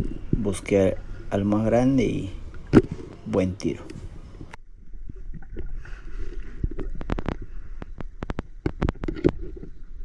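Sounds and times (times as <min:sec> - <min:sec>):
underwater low rumble: 0:00.0 - 0:10.0
sharp clicks and knocks: 0:06.7 - 0:09.8.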